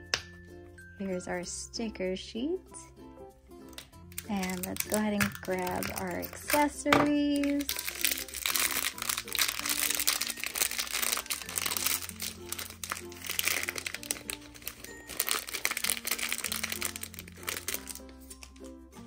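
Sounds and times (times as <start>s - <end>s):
background music with slow bass: 0.0s - 19.0s
plastic packaging crinkling: 3.7s - 18.7s.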